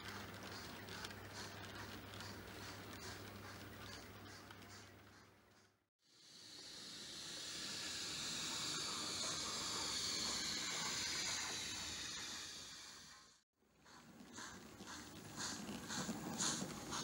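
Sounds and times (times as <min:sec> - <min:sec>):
steam locomotive hissing: 0:06.1 - 0:17.0.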